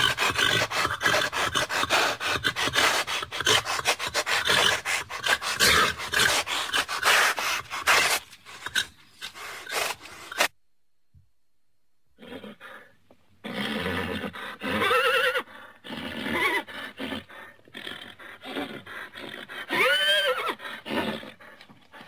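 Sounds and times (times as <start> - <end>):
horse whinnying: 13.4 - 21.4.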